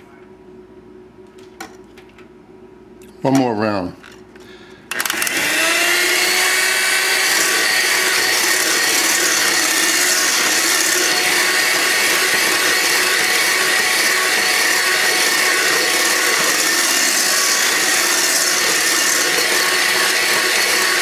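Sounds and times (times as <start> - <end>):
electric mixer whining: 4.9 - 21.0.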